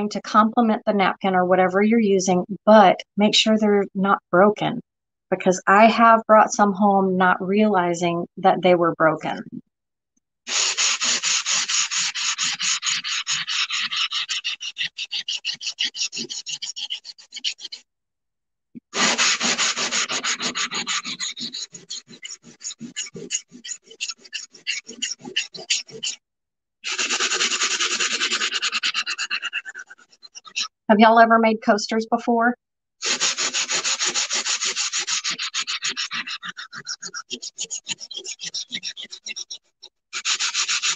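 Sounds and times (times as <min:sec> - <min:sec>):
sanding block scrubbing tile: 0:10.5 - 0:17.8, 0:18.9 - 0:26.2, 0:26.8 - 0:30.7, 0:33.0 - 0:40.9.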